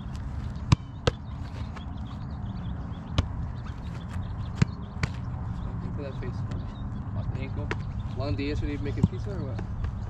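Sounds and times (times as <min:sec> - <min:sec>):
football thuds: 0:00.0 - 0:02.1, 0:02.9 - 0:05.4, 0:07.3 - 0:08.2, 0:08.8 - 0:10.0.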